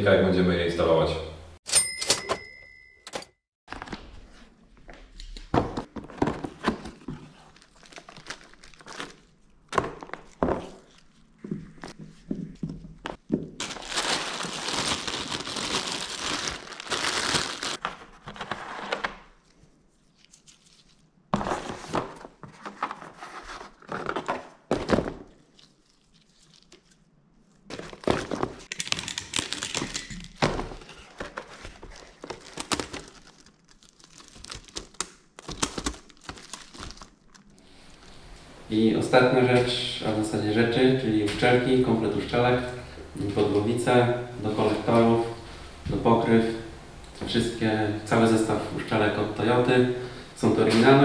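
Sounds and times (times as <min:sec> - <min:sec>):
cardboard packaging rustling: 0:05.8 - 0:11.3, 0:13.5 - 0:19.6, 0:20.2 - 0:25.7, 0:27.6 - 0:37.6
plastic wrapping crinkling: 0:06.9 - 0:11.2, 0:13.6 - 0:18.0, 0:27.6 - 0:38.0.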